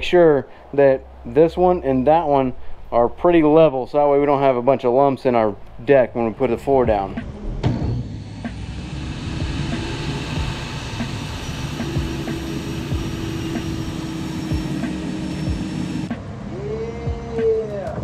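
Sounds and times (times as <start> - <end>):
table saw cutting board: 7.6 - 16.2.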